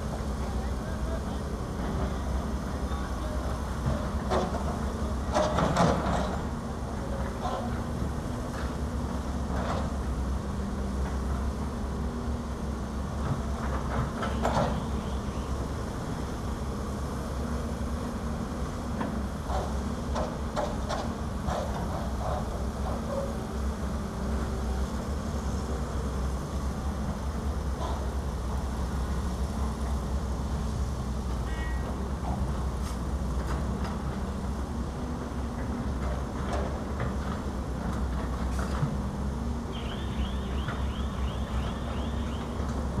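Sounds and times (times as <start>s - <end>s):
diesel engines rumbling: 0.0s - 43.0s.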